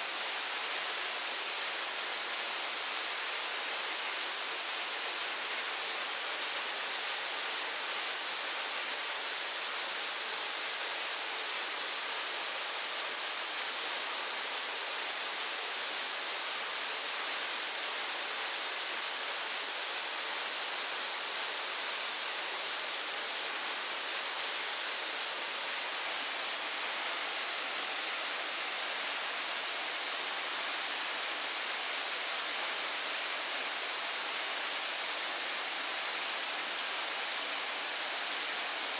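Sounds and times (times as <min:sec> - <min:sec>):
rushing water: 0:00.0 - 0:38.9.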